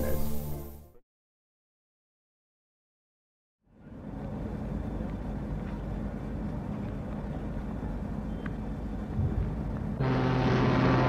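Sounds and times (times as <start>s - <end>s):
low rumble of ship ambience: 3.7s - 11.0s.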